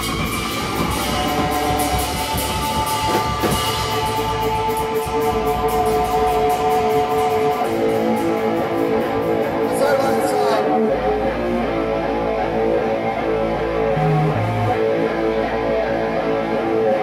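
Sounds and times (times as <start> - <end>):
drums with cymbal strokes: 0.0 - 10.5
electric guitar sustained notes: 0.0 - 17.0.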